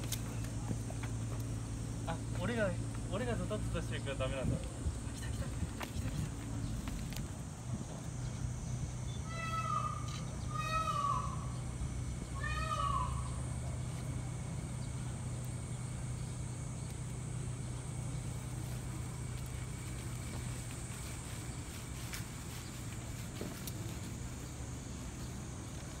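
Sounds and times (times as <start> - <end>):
low steady hum: 0.0 - 26.0
high mewing animal calls: 8.3 - 15.1.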